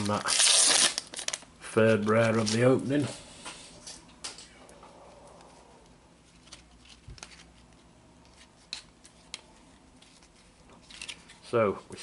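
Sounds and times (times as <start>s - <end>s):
cards rustling: 6.3s - 12.0s.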